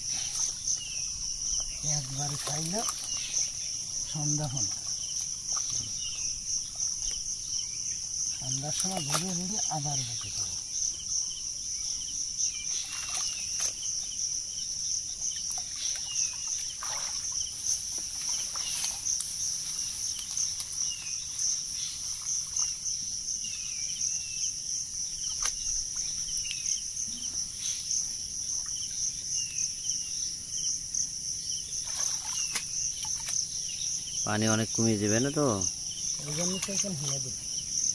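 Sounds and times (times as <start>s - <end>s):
chorus of insects: 0.0s - 37.9s
hands splashing in muddy water: 15.4s - 19.4s.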